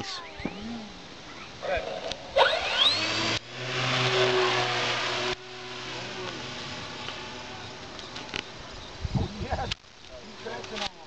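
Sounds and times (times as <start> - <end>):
model airplane motor buzzing: 1.8 - 9.0.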